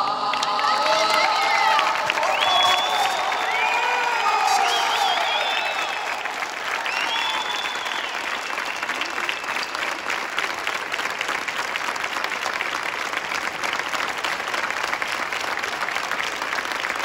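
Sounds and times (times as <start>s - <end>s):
crowd applauding: 0.0s - 17.0s.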